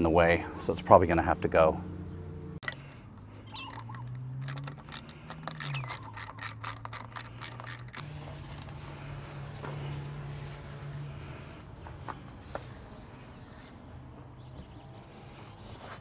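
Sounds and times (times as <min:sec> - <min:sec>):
aerosol spray hissing: 0:08.0 - 0:11.6, 0:12.4 - 0:13.8.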